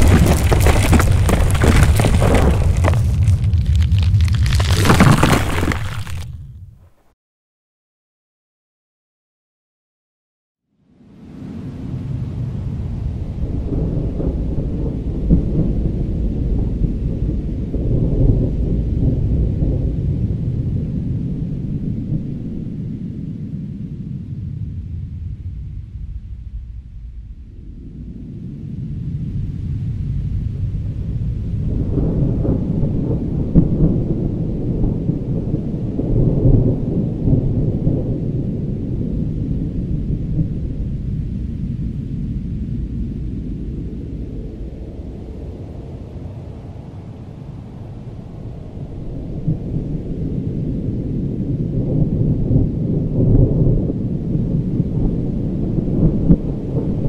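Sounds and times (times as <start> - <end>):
rolling thunder rumbling: 11.5 - 22.7, 31.0 - 42.0, 42.8 - 57.0.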